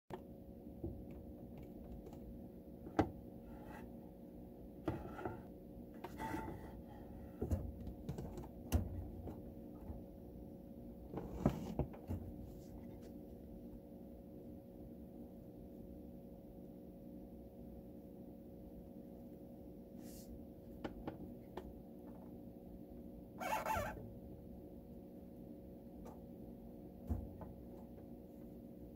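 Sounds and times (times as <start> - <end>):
faint steady hum: 0.1 - 28.9.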